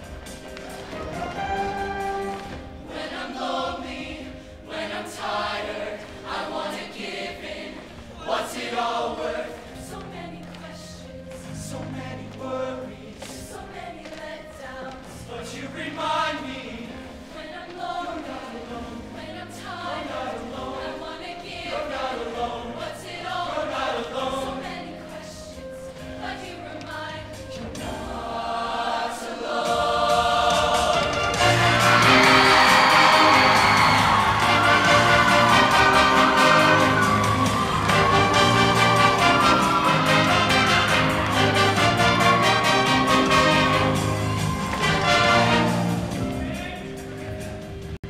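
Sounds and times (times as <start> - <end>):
choir singing in harmony: 0.0 - 48.0
instrumental accompaniment: 0.0 - 48.0.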